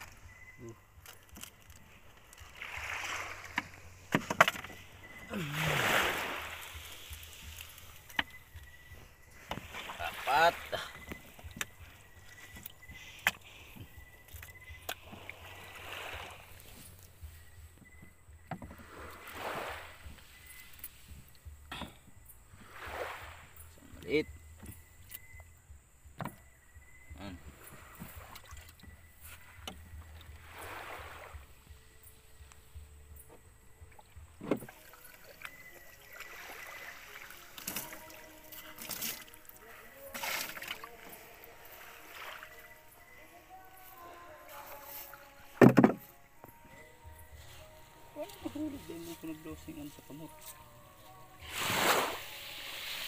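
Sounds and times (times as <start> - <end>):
knocks on wooden boat deck: 45.6 - 46.0
wet hiss: 51.4 - 53.0.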